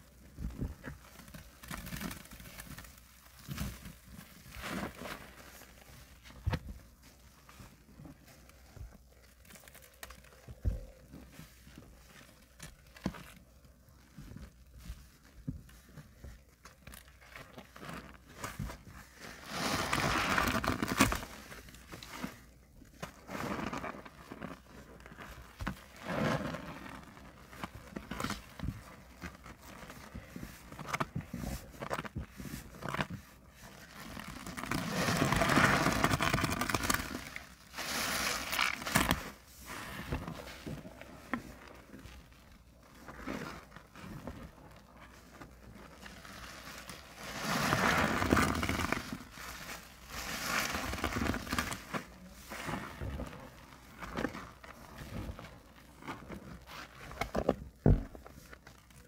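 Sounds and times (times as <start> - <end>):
sponges squelching in sudsy water: 0.0 - 59.0
foam bubbles crackling: 22.7 - 59.0.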